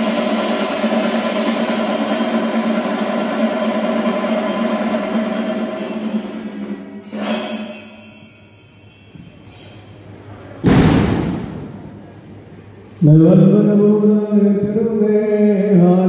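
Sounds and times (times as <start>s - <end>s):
music: 0.0s - 9.4s
metallic strike ringing: 0.0s - 12.0s
loud thud: 10.6s - 12.1s.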